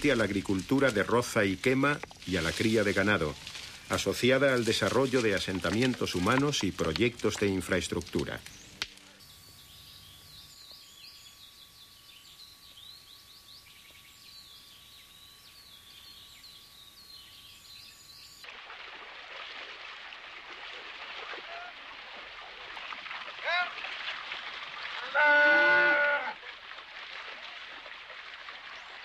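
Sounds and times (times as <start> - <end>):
birds chirping and calling: 8.4 - 18.4
faint steady hum: 8.4 - 18.4.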